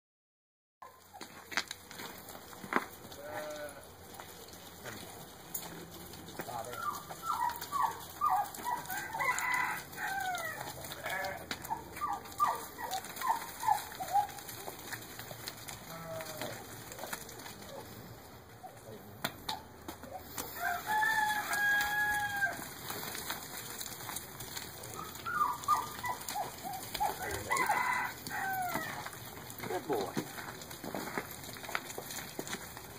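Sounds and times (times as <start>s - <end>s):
chickens clucking and squawking: 6.5s - 15.4s, 16.6s - 23.8s, 24.5s - 30.6s
rooster crowing: 8.2s - 11.0s, 20.4s - 22.7s, 27.0s - 29.2s.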